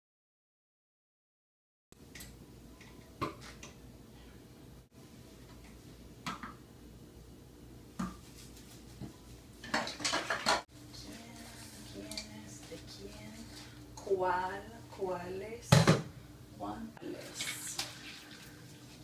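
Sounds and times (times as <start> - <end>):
dishes clinking in a sink: 9.6 - 10.7.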